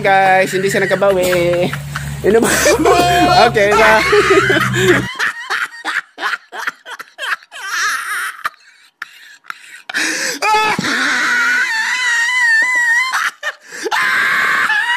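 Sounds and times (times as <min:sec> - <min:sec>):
bursts of laughter: 0:00.4 - 0:14.9
high-pitched wailing voice: 0:02.6 - 0:04.7.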